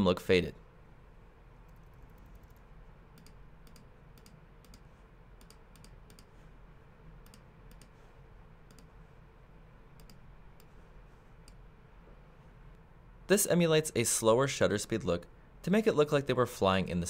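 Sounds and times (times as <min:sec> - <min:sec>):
low steady background hum: 0:00.0 - 0:17.0
computer mouse clicks: 0:01.6 - 0:06.4, 0:07.2 - 0:08.0, 0:08.6 - 0:09.0, 0:09.9 - 0:10.8, 0:11.4 - 0:11.6.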